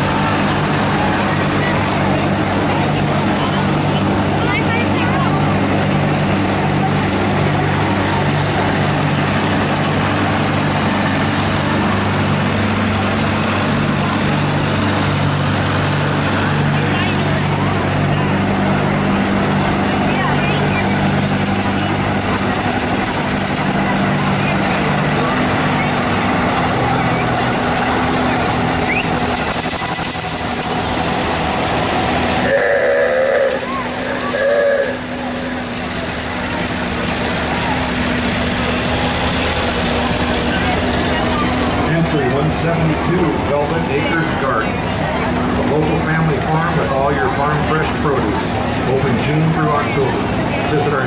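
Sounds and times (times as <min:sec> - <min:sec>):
large vehicle engine idling: 0:00.0 - 0:51.0
steady background noise: 0:00.0 - 0:51.0
whistle with wavering pitch: 0:28.8 - 0:29.2.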